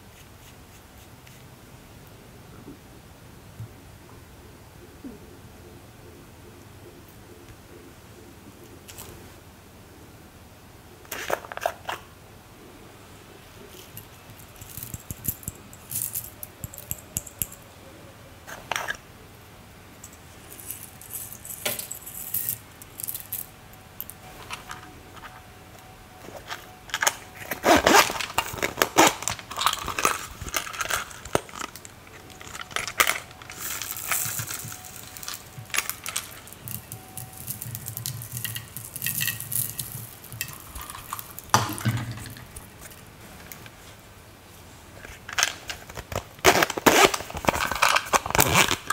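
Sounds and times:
small containers clicking: 0:13.8 - 0:17.6, 0:26.4 - 0:43.0
beads rattling into plastic trays: 0:27.0 - 0:42.7.

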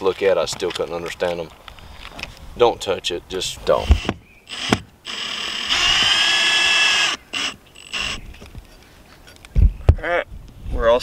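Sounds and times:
cordless drill driving screw: 0:03.8 - 0:08.2.

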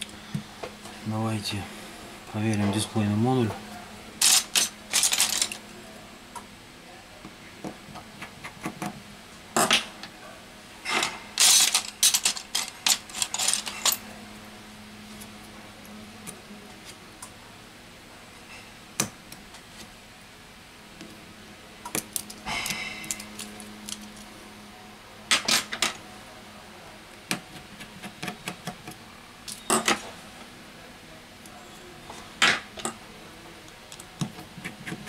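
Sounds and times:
small parts set down: 0:04.2 - 0:05.6, 0:10.9 - 0:14.0.

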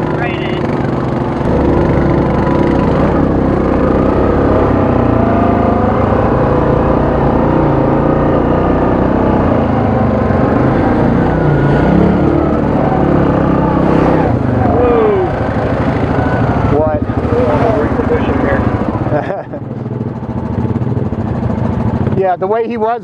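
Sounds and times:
atv engine running: 0:00.0 - 0:23.0.

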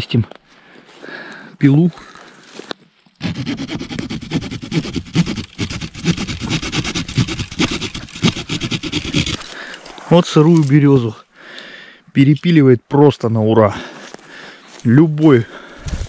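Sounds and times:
saw cutting a stem: 0:03.2 - 0:10.0.

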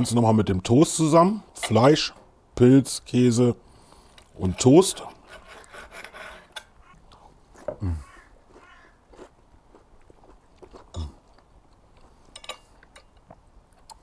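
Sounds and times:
man chewing toast: 0:06.9 - 0:14.0
cutlery clinking: 0:12.3 - 0:13.2.

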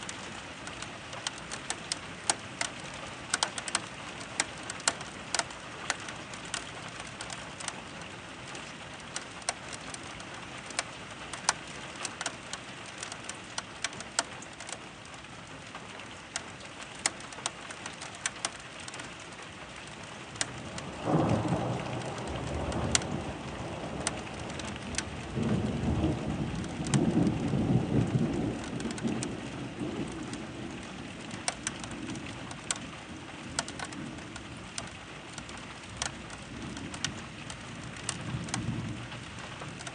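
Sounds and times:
raindrops ticking: 0:00.0 - 0:39.9
steady rain: 0:00.0 - 0:39.9
thunder rumbling: 0:20.5 - 0:34.8, 0:36.4 - 0:39.9.

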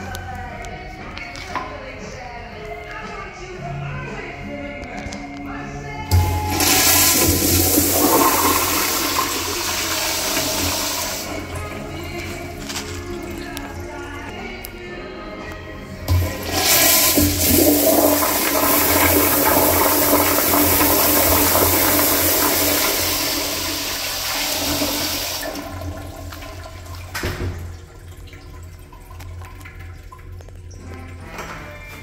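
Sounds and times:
flush valve click: 0:06.1 - 0:11.4
toilet water rushing: 0:06.1 - 0:14.0, 0:16.0 - 0:31.3.

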